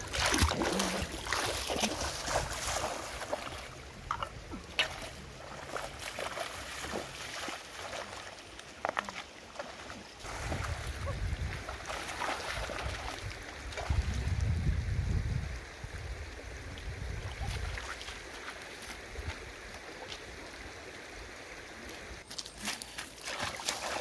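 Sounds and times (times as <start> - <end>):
water splashing while wading: 0.0 - 14.3, 17.2 - 20.3, 22.3 - 24.0
stream flowing: 0.0 - 24.0.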